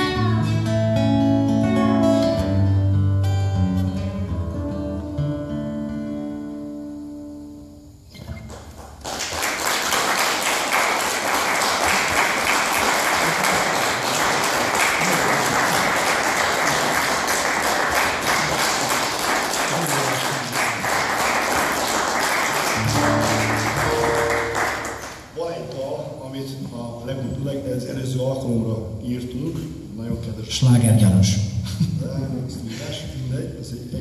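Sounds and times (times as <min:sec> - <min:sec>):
audience applauding: 0:08.3 - 0:25.4.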